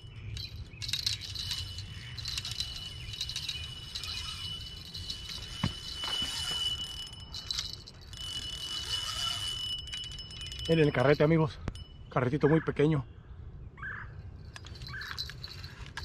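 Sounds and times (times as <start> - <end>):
fishing reel clicking: 0.3 - 11.8.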